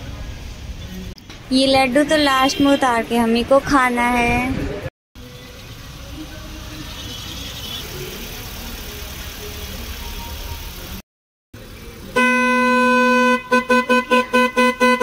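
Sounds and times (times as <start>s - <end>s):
outdoor background noise: 0.0s - 11.0s, 11.6s - 15.0s
loud steady horn note: 12.2s - 15.0s.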